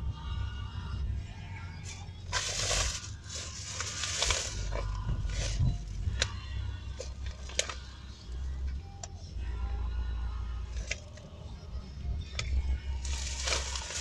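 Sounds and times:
faint music: 0.0s - 14.0s
car cabin rumble: 0.9s - 14.0s
plastic bottle handling rustles: 1.9s - 7.9s, 13.0s - 14.0s.

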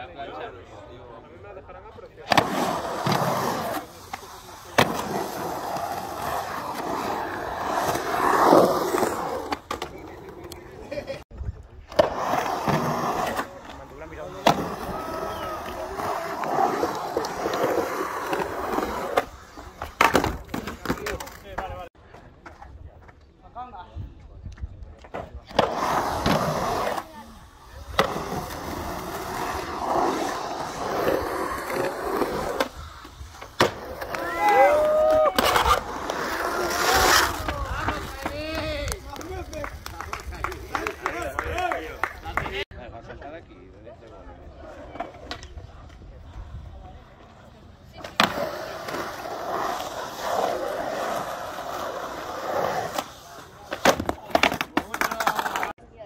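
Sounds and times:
skateboard wheels rolling on concrete: 0.0s - 56.0s
skateboard clack: 24.6s - 43.3s, 47.9s - 55.7s.

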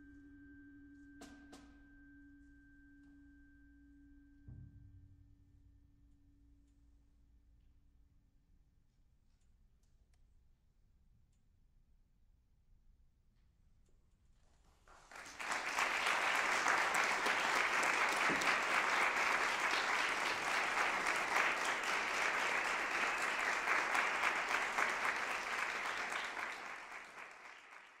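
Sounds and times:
audience applause: 14.9s - 28.0s.

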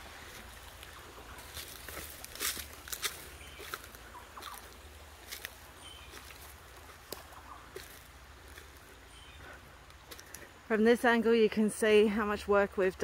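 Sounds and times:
footsteps crunching on dry leaves: 0.0s - 10.5s
faint bird chirps: 3.3s - 6.5s, 8.8s - 9.7s.

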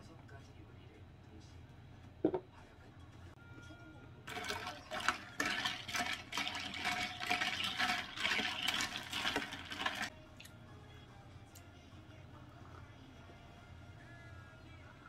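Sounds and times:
liquid pouring into glass: 4.3s - 10.1s.

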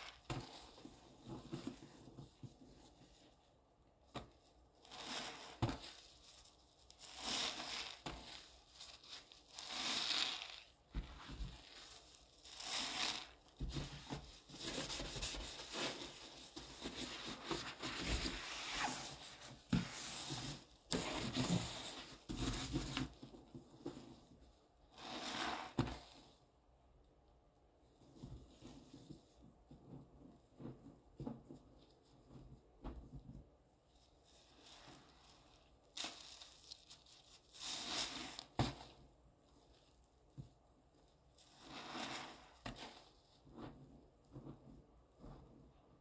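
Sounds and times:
sponge squelching in foam: 4.4s - 13.6s, 24.9s - 26.2s, 34.1s - 38.9s, 41.4s - 44.6s.

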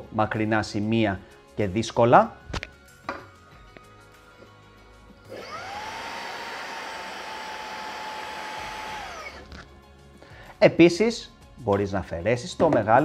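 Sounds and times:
handheld vacuum motor whine: 5.2s - 9.6s.

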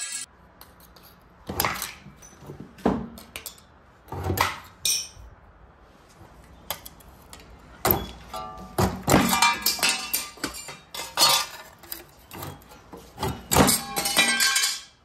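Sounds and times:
metal sheet ringing and rattling: 12.5s - 15.0s.

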